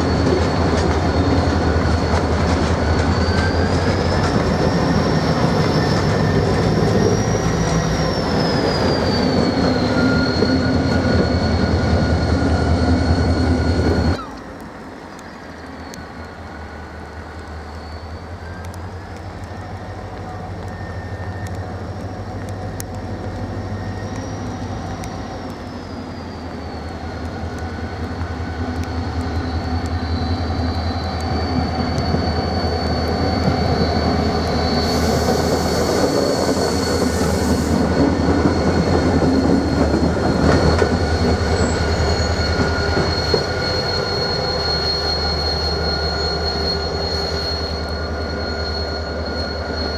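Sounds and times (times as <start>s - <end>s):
wheel squeal on track: 0.0s - 14.5s, 15.4s - 49.9s
diesel locomotive engine drone: 0.0s - 49.9s.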